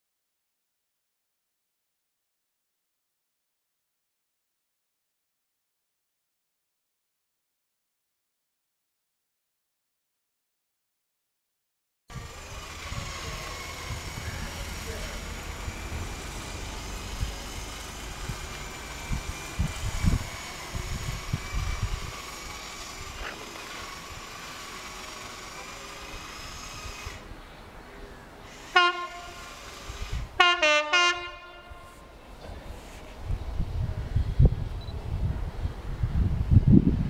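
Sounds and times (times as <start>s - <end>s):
locomotive horn blasts: 28.6s - 29.7s, 30.4s - 32.2s.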